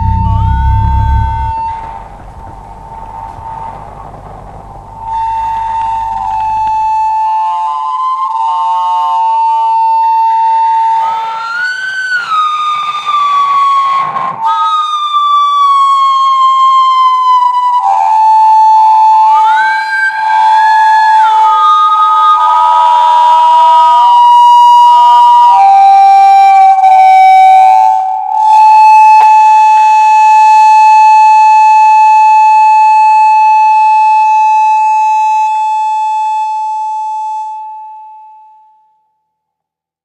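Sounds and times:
acoustic feedback howl: 0:00.0 - 0:08.3.

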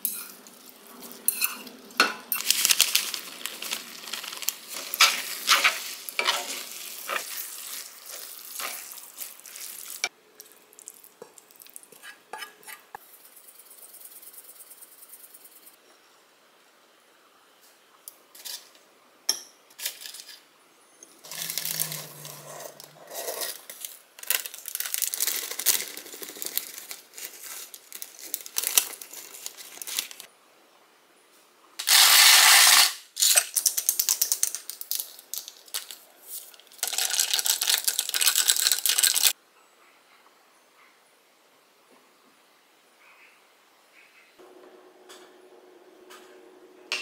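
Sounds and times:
parchment paper crinkling: 0:02.4 - 0:10.0, 0:23.4 - 0:30.3, 0:33.9 - 0:39.4.

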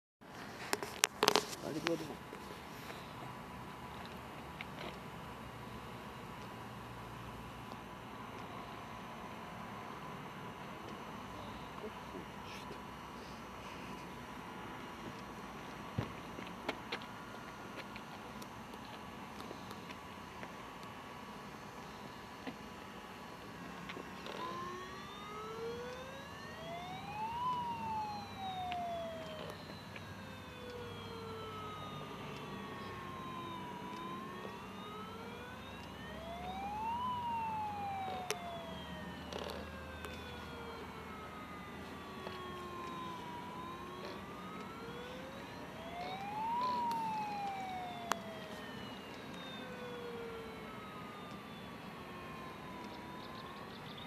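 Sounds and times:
model boat siren wailing: 0:00.6 - 0:03.2, 0:21.3 - 0:54.0.

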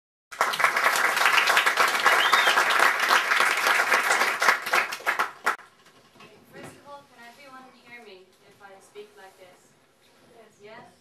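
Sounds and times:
audience applauding: 0:00.3 - 0:05.6.

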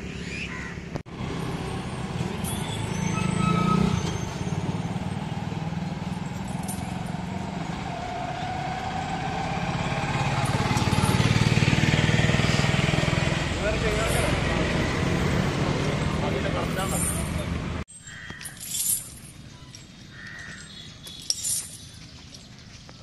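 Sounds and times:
road traffic passing: 0:00.0 - 0:23.0
truck engine running: 0:04.7 - 0:17.8.

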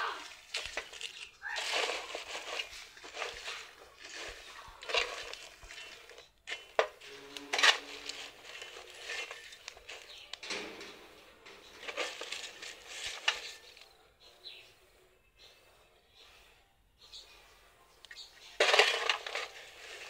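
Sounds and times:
banana peels crackling in fire: 0:00.2 - 0:10.4.

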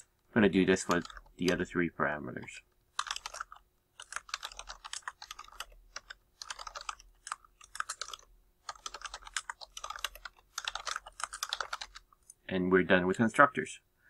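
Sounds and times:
fast typing on keyboard: 0:00.7 - 0:01.7, 0:02.9 - 0:12.2.

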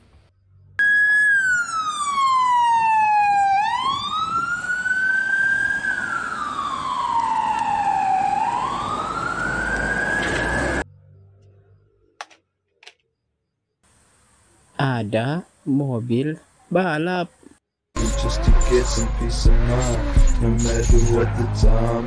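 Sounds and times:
police siren wailing: 0:00.8 - 0:10.8, 0:18.0 - 0:22.0.

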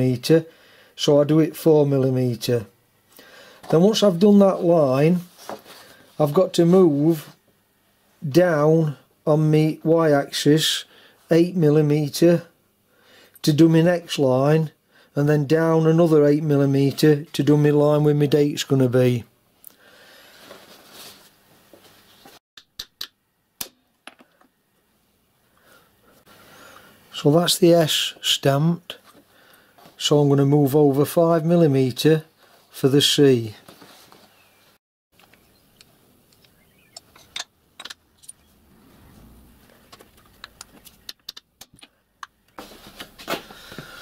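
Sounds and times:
paper rustling: 0:05.2 - 0:06.1, 0:20.3 - 0:22.4, 0:33.6 - 0:34.4, 0:42.6 - 0:44.0.

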